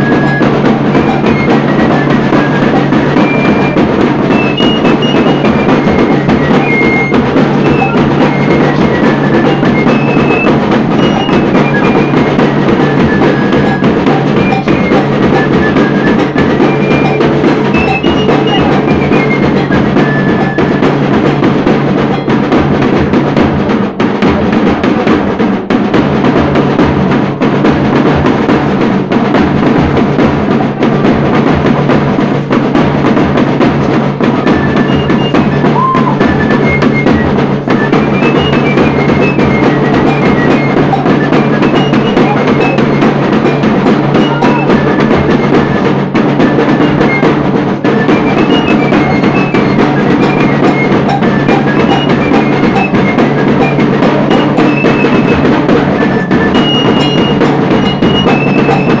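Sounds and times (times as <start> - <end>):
short high notes: 0.0 - 20.8, 34.7 - 37.1
festive music with drums and percussion: 0.0 - 59.0.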